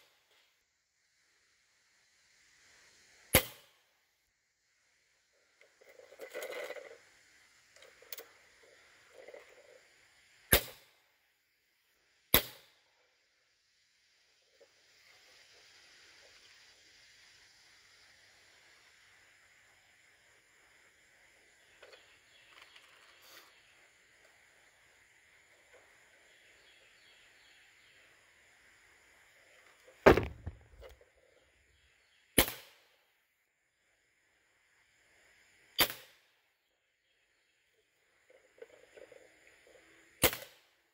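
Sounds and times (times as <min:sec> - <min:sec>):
air rifle shot: 0:30.1 - 0:30.9, 0:32.4 - 0:32.8
air rifle shots: 0:32.4 - 0:32.8.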